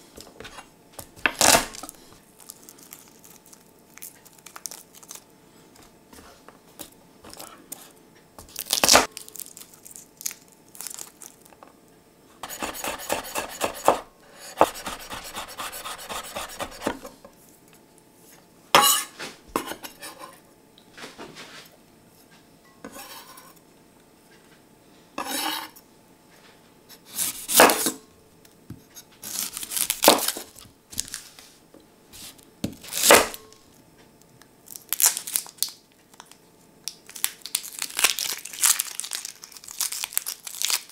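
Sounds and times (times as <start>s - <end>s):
knife chopping on wooden board: 12.4s - 17.1s.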